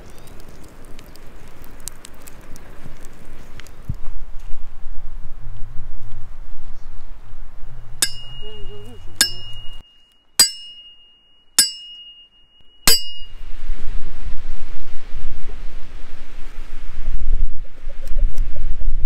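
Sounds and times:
sharp ringing clinks: 0:08.0 - 0:13.4.

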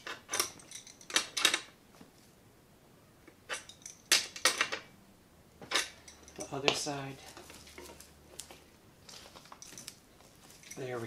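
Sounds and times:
wrench clinking on metal nuts: 0:00.0 - 0:01.7, 0:03.5 - 0:04.9, 0:05.6 - 0:07.0, 0:09.4 - 0:11.0.

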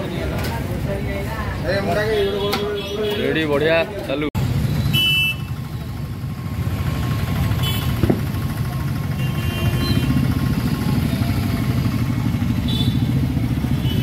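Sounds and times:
vehicle engine rumble: 0:04.4 - 0:14.0.

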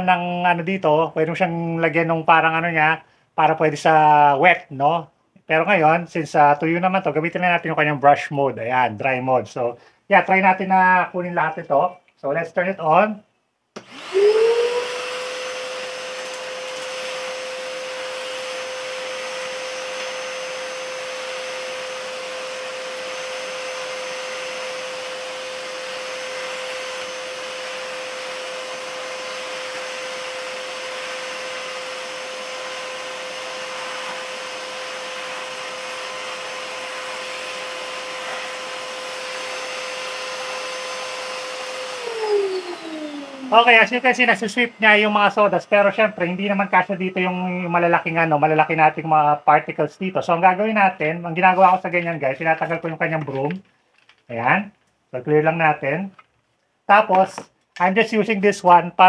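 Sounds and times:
shop vacuum motor whining: 0:13.8 - 0:49.8.

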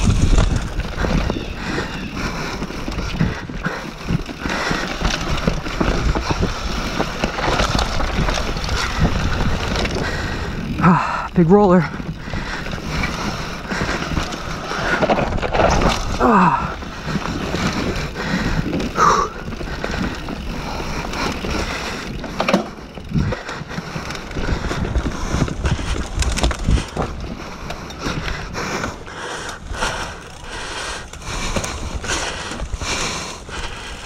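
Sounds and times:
bike knocking and rattling: 0:00.0 - 0:34.0
knobby tyres rolling over dirt: 0:00.0 - 0:34.0.

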